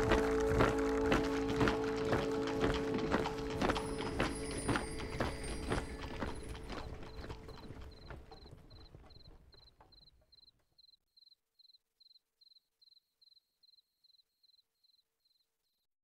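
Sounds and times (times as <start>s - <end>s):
cricket chirping: 3.2s - 15.8s.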